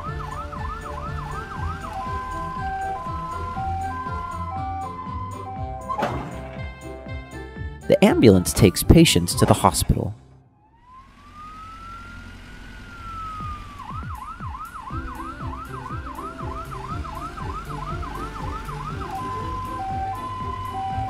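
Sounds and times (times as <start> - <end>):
cartoon ambulance siren: 0.0 - 6.1, 10.6 - 21.0
background music with a beat: 0.0 - 9.5, 14.0 - 21.0.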